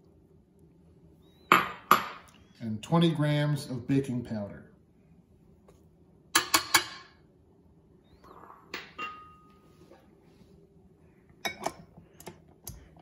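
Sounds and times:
glass bowl clinking on steel bowl: 8.9 - 9.5.

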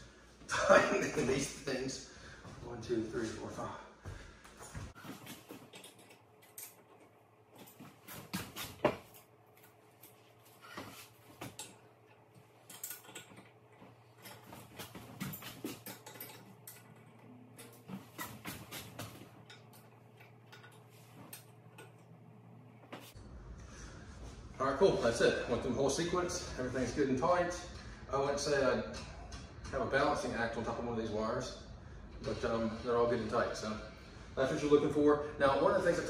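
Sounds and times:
metal tools clicking and tapping: 11.5 - 13.6, 15.4 - 18.3, 19.4 - 22.0.

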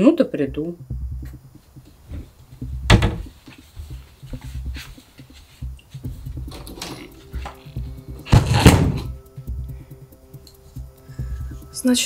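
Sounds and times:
footsteps on a floor: 1.2 - 9.1.

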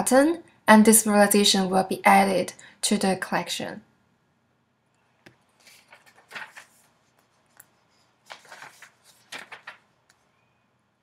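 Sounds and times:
rustling and handling noises: 5.2 - 10.6.

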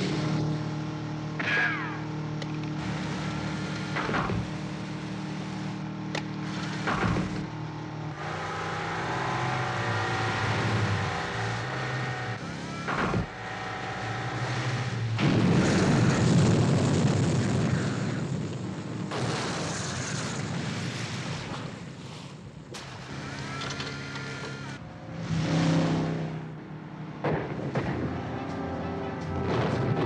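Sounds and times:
powerboat engines running: 0.0 - 9.3, 26.6 - 30.0.

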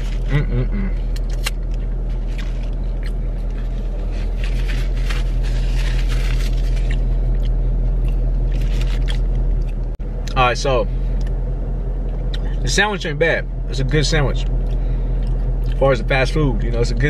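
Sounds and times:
low hum inside a car: 0.0 - 17.0
paper wrapper rustling: 3.5 - 7.2, 8.4 - 9.3.

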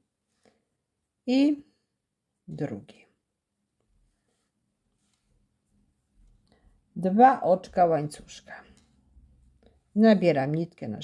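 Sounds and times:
woman speaking: 1.3 - 1.7, 2.5 - 3.2, 7.0 - 8.8, 9.9 - 11.0.

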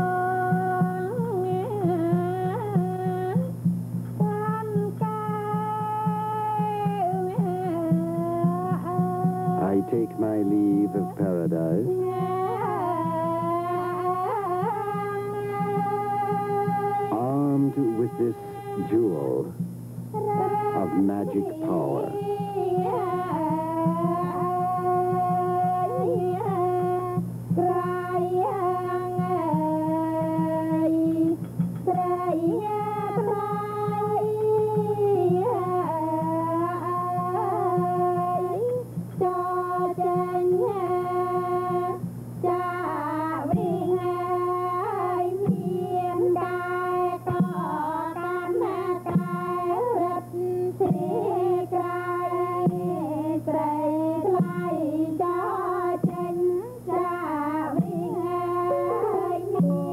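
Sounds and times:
steady low hum: 0.0 - 59.9
woman singing ornamented melody: 11.9 - 19.4, 20.2 - 59.9
accompanying ensemble: 20.5 - 22.2.

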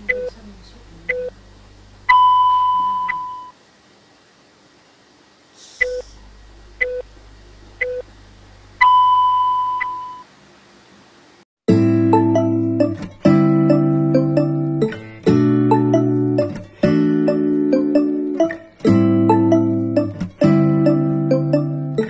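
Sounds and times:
electronic countdown beeps: 0.0 - 0.4, 1.1 - 1.4, 2.1 - 3.5, 5.8 - 6.1, 6.8 - 7.1, 7.8 - 8.1, 8.8 - 10.2, 17.2 - 18.3.

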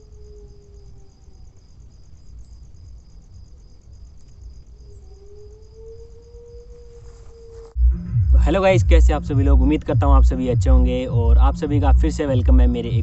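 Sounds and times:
crickets chirping: 0.0 - 13.0
faint low held tone: 7.7 - 13.0.

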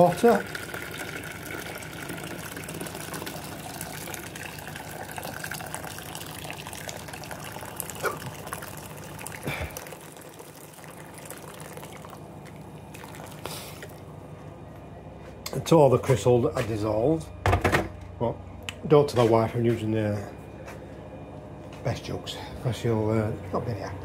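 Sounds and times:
hot water pouring into jug: 0.0 - 14.1.

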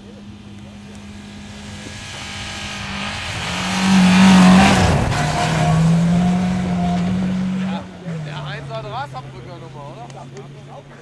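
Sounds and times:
rally car engine at high revs: 0.0 - 11.0
tyres hissing and snow spray: 0.2 - 10.5.

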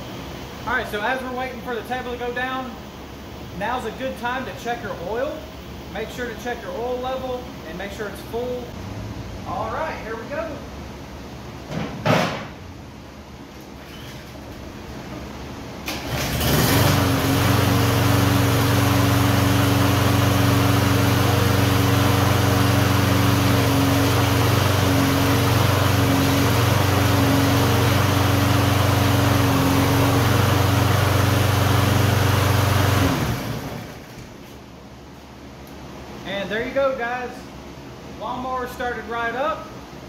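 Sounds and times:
lawn mower engine running: 15.8 - 34.3.

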